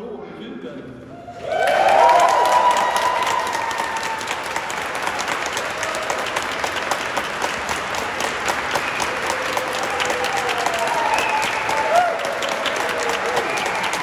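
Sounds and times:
voices cheering: 1.2s - 6.9s, 8.8s - 14.0s
congregation applauding: 1.4s - 14.0s.

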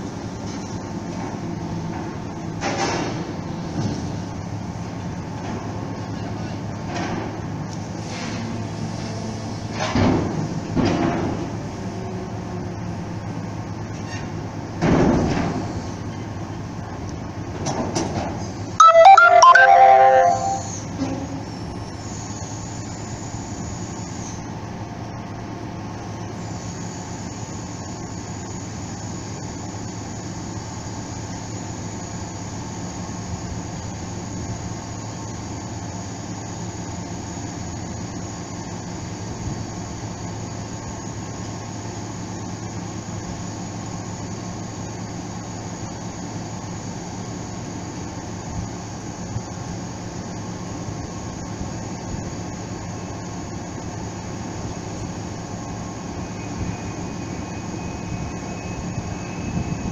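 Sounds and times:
loud ringing tones: 18.8s - 20.9s.

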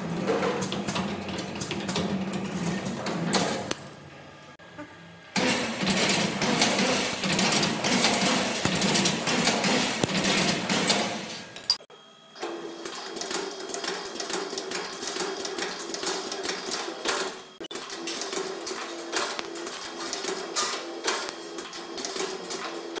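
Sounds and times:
machine hum: 0.0s - 23.0s
rapid clatter of clicks: 5.4s - 11.8s.

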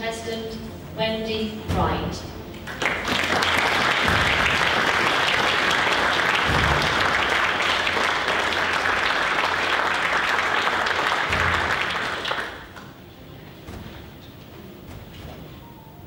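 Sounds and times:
audience applauding: 2.5s - 13.0s.

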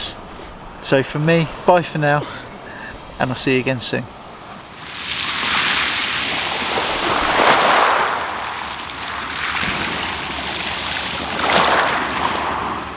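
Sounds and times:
waves breaking on shingle beach: 4.7s - 12.9s.

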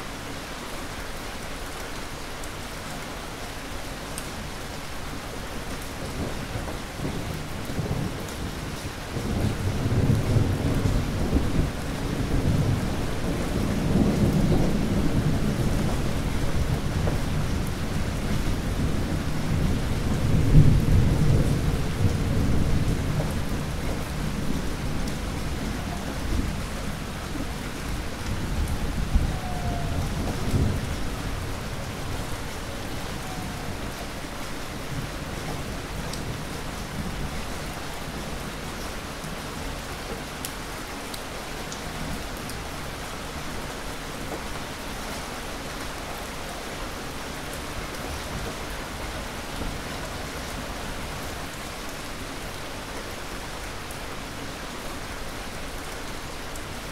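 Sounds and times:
heavy rain: 0.0s - 56.9s
rolling thunder: 6.2s - 37.3s.

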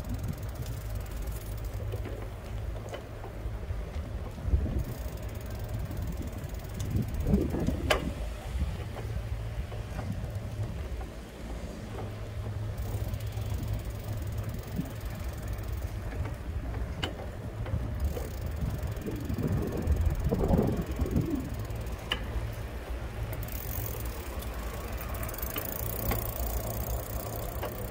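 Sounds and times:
vehicle rolling over asphalt: 0.0s - 27.9s
wind on microphone: 4.3s - 5.1s, 5.8s - 9.0s, 16.3s - 21.8s.

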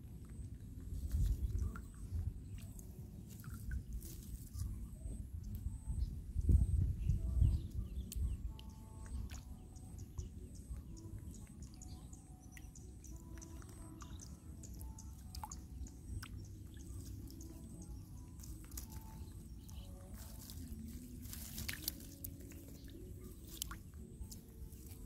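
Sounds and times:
light water splashes: 0.0s - 4.8s, 12.5s - 25.0s
small twig clicks: 18.4s - 25.0s.

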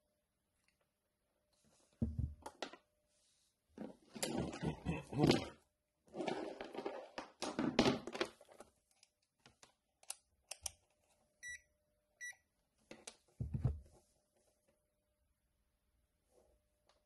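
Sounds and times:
multimeter beeps: 11.4s - 12.4s.

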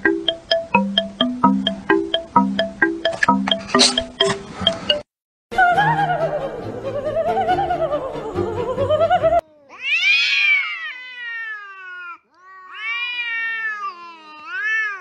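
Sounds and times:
music: 0.0s - 5.0s, 5.6s - 9.4s
cat yowling: 9.5s - 15.0s.

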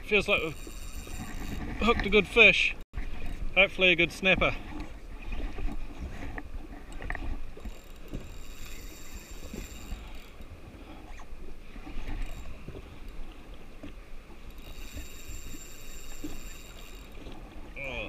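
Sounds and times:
waves lapping against hull: 0.0s - 18.0s
fishing reel whirring: 0.1s - 2.0s, 6.9s - 11.3s, 12.0s - 13.4s, 14.4s - 17.4s.

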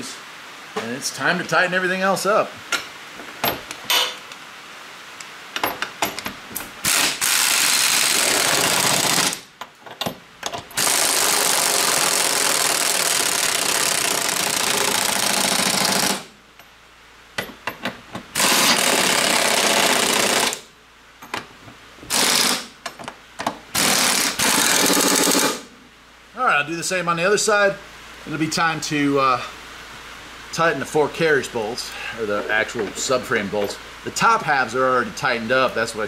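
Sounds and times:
impact wrench running: 6.8s - 9.5s, 10.8s - 16.3s, 18.4s - 20.7s, 22.1s - 22.7s, 23.8s - 25.7s.

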